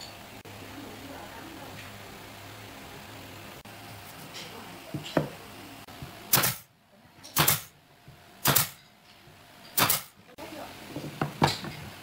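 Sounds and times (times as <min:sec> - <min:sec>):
nail gun firing into wood: 0:06.3 - 0:06.7, 0:07.4 - 0:07.7, 0:08.4 - 0:08.8, 0:09.8 - 0:10.1.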